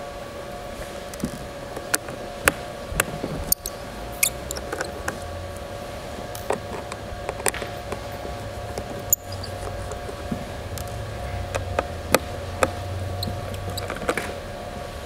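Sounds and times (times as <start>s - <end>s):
faint hum: 0.0s - 15.0s
screwdriver clicking and scraping: 3.5s - 5.3s, 6.3s - 14.3s.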